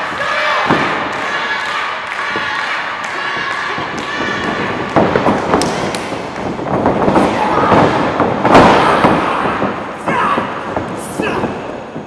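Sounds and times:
crowd clapping and shouting: 0.0 - 8.1
sharp cracks: 0.6 - 12.0.

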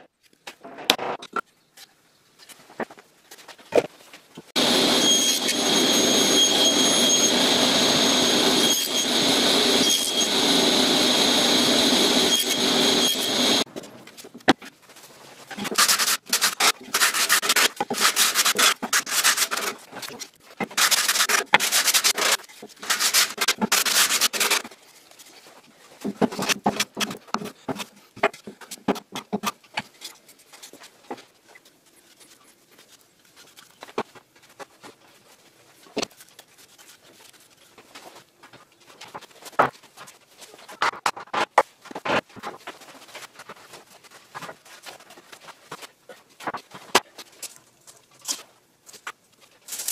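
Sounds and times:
table saw whining: 4.6 - 13.7
hand-sanding wood: 15.8 - 19.8, 20.8 - 24.6.

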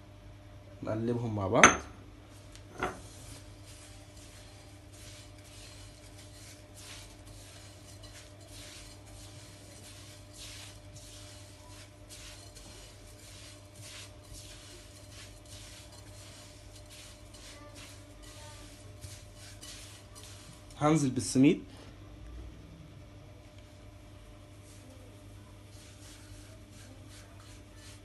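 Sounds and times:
steady low hum: 0.0 - 28.0
fingers mixing sugar in glass bowl: 2.5 - 21.4, 24.2 - 28.0.

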